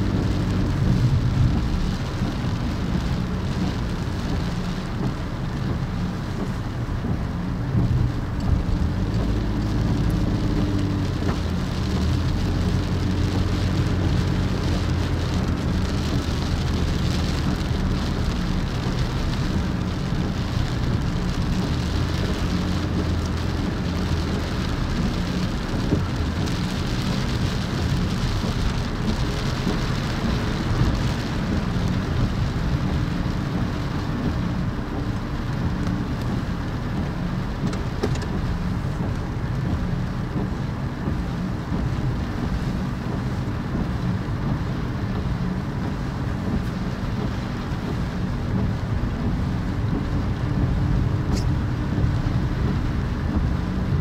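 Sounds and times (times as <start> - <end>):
low engine hum: 0.0 - 54.0
road rumble: 0.0 - 54.0.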